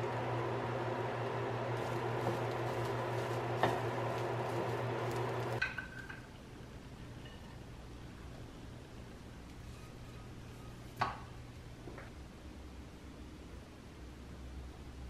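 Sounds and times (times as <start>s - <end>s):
food sizzling in pan: 1.8s - 5.6s.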